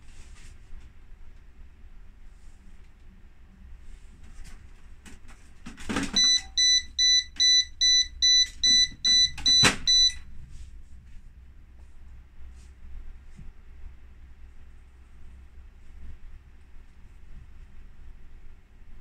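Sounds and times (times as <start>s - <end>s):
short high-pitched beeps: 6.2s - 10.2s.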